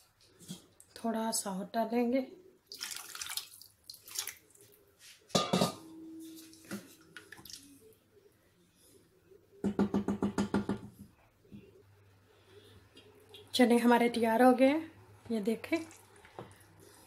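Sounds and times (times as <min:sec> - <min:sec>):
water pouring into metal pot: 0:02.7 - 0:04.6
metal clank on pot: 0:05.4 - 0:05.9.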